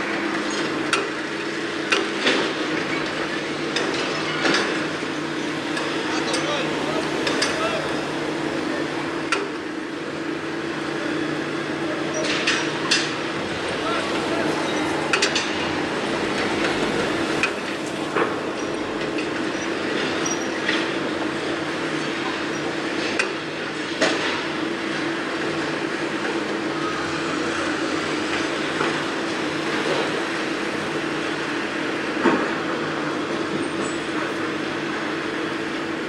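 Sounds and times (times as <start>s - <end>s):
machinery humming: 0.0s - 36.0s.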